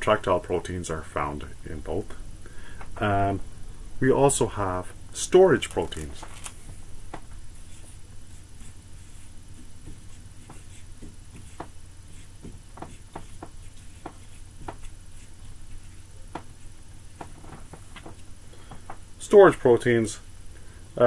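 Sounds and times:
low steady hum: 0.0s - 21.0s
marker squeaking on whiteboard: 7.6s - 18.1s.

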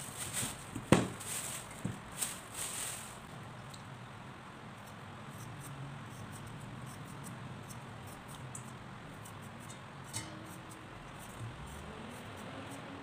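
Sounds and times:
vegetable peeler scraping potato: 4.8s - 13.0s.

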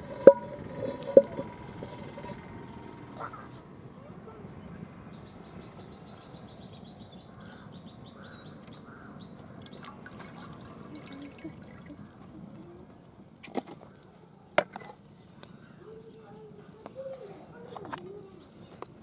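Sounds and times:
liquid pouring into metal pot: 9.5s - 12.0s.

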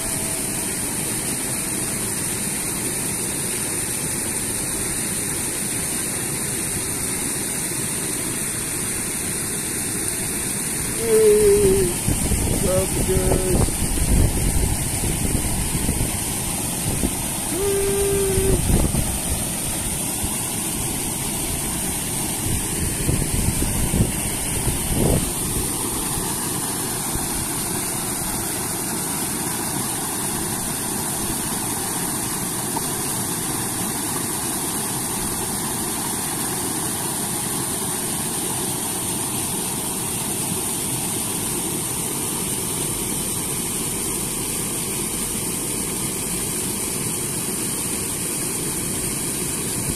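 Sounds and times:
wind gusts on microphone: 11.8s - 19.5s, 22.4s - 25.8s
water pouring over weir: 12.0s - 40.3s.

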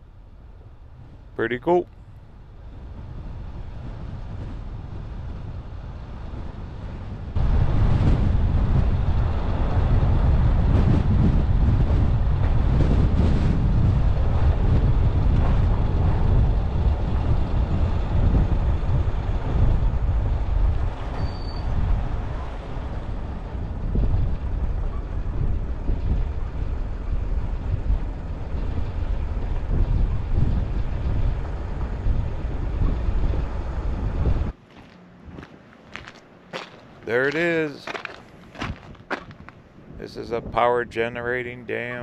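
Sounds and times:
vehicle road and wind noise: 0.0s - 42.0s.

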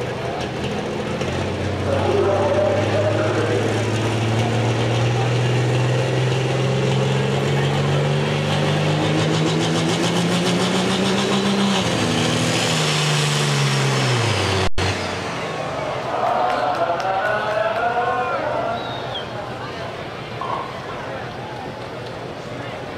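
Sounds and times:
tractor engine revving: 0.0s - 17.0s.

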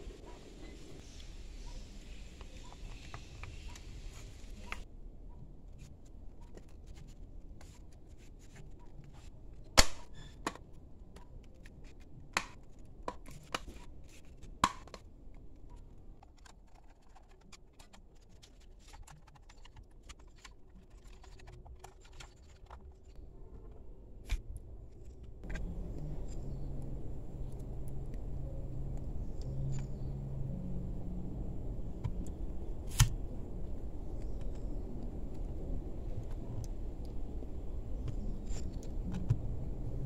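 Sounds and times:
plastic shell clicking and scraping: 15.7s - 23.2s, 34.1s - 39.8s.

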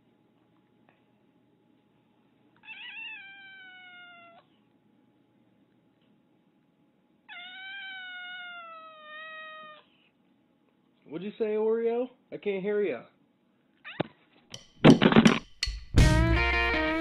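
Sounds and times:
cat meowing: 2.6s - 4.5s, 7.3s - 9.9s, 13.9s - 14.2s.

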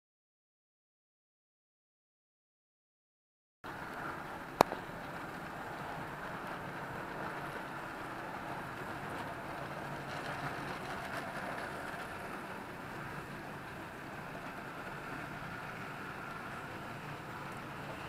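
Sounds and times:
model train rolling on track: 3.7s - 18.0s.

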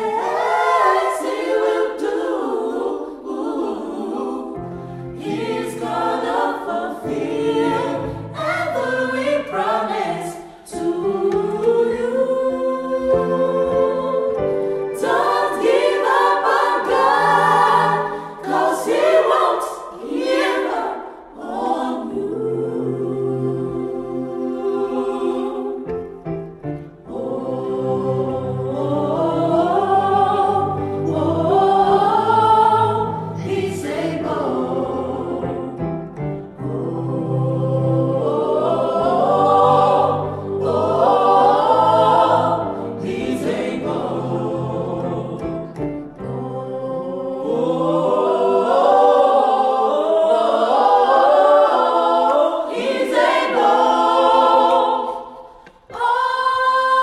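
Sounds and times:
vocal group singing in harmony: 0.0s - 57.0s.

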